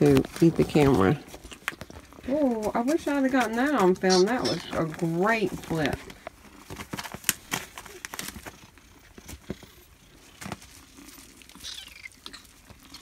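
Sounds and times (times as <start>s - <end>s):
kittens scuffling on blanket: 0.0s - 13.0s
small clicks and crinkles: 0.0s - 13.0s
kitten mewing: 11.6s - 12.6s.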